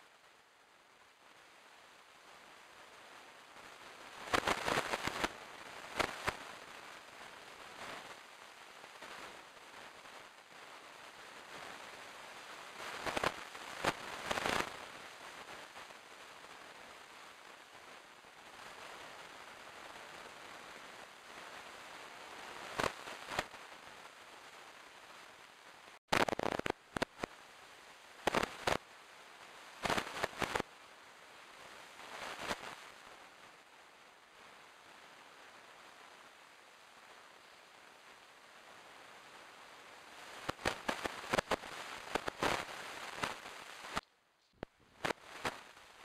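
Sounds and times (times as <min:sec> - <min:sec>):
faint hiss: 0:00.0 - 0:46.0
sharp crackles: 0:03.6 - 0:17.8, 0:18.5 - 0:27.4, 0:28.2 - 0:28.9, 0:29.5 - 0:30.7, 0:31.6 - 0:33.6, 0:39.3 - 0:46.0.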